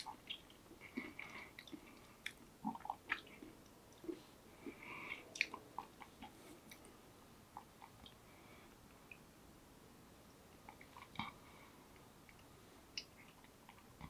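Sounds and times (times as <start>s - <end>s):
chewing food: 0.0s - 6.9s.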